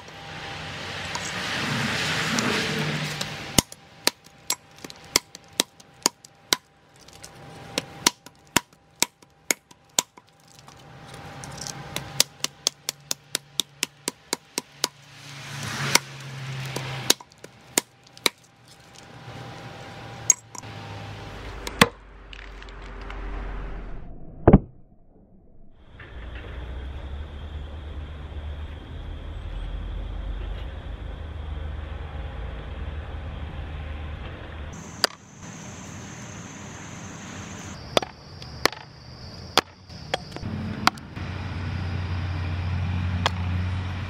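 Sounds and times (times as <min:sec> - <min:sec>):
hand tool striking: 0:02.4 - 0:19.6, 0:20.2 - 0:20.7.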